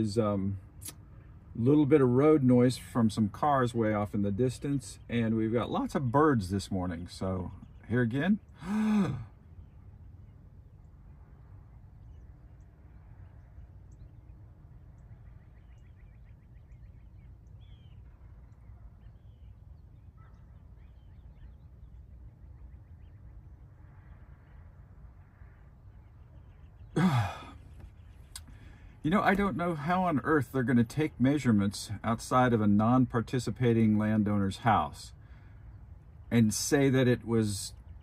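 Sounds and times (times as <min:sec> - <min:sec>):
distant road traffic rumble: 0:00.0 - 0:38.0
faint bird chirps: 0:07.1 - 0:29.0
loud exhale: 0:08.6 - 0:09.3, 0:27.0 - 0:27.6.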